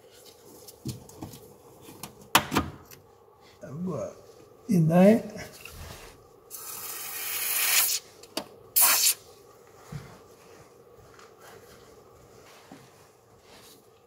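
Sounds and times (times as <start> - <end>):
aerosol can spraying hiss: 6.5 - 8.0, 8.8 - 9.2.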